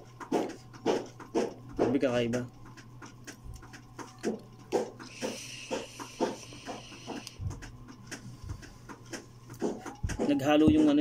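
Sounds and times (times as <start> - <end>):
breathy vapor exhale: 5.1 - 7.4.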